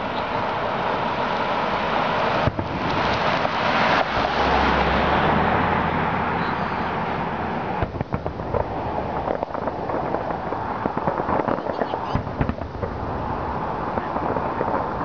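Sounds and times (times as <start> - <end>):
firework shell bursts rumbling: 0.0 - 5.3, 5.9 - 15.0
rapid crackling pops: 2.3 - 5.0, 7.6 - 15.0.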